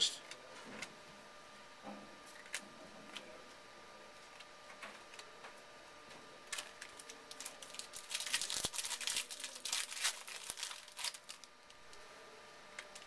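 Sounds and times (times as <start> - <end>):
wrapper crinkling: 6.5 - 12.0.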